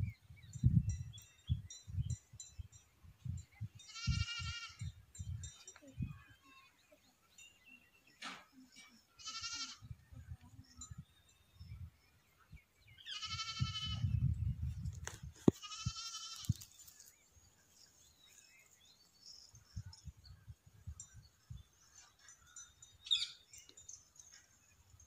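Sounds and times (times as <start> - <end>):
goats bleating: 9.2 - 9.8.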